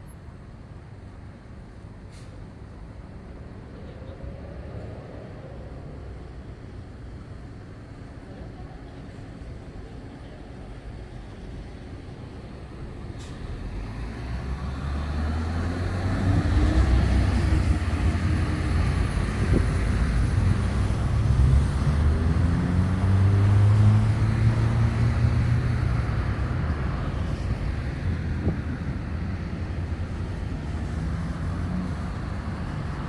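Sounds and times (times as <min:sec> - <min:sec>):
large vehicle engine passing: 0:13.2 - 0:33.0.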